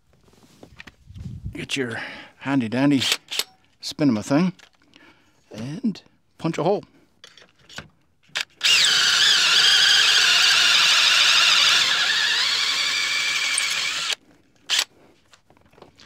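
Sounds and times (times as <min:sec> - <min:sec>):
hand drill whining: 0:08.3 - 0:15.0.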